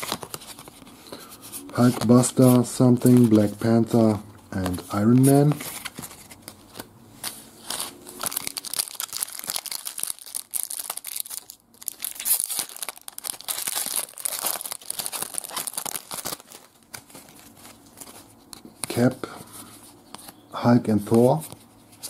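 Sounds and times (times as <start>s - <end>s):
foil wrapper crinkling and tearing: 7.6s - 18.3s.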